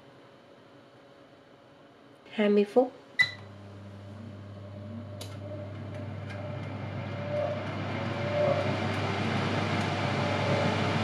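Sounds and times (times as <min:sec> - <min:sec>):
airfryer fan humming: 0:03.1 - 0:11.0.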